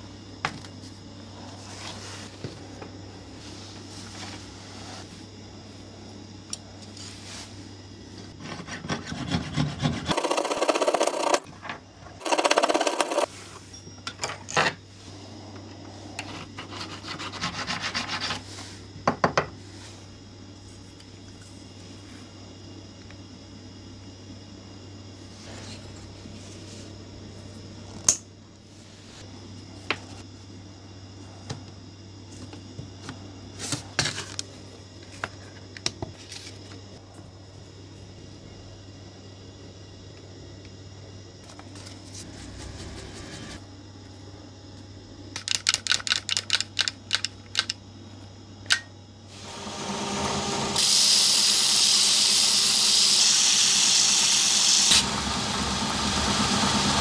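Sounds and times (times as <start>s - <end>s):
steady low hum: 0.0s - 45.4s.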